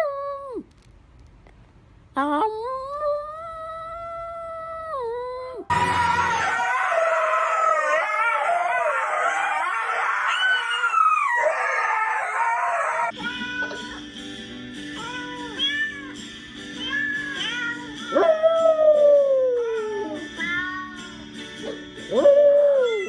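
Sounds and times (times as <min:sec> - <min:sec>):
dogs howling: 0:05.6 - 0:13.8, 0:18.1 - 0:20.2, 0:21.7 - 0:23.0.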